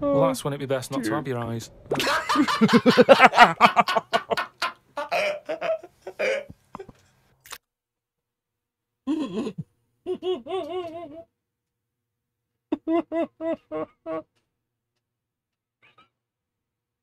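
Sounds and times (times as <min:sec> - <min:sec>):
man laughing: 0:01.9 - 0:06.9, 0:09.1 - 0:11.3, 0:12.7 - 0:14.3.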